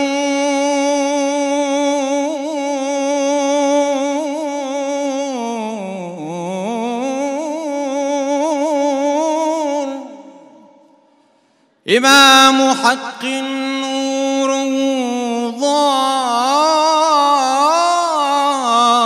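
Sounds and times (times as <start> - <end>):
man chanting solo: 11.9 - 19.0.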